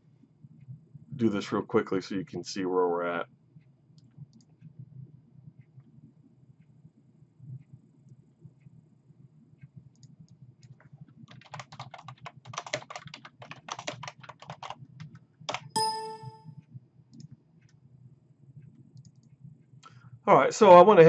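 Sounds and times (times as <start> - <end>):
scattered clicks: 9.6 - 16.2, 18.6 - 20.0
keyboard typing: 10.0 - 16.5
short electronic chime: 15.8 - 16.5.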